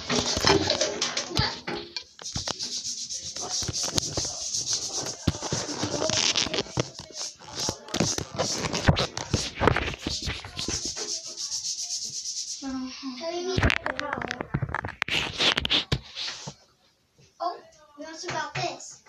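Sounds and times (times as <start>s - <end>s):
phone microphone rubbing on clothing: 2.2s - 16.6s.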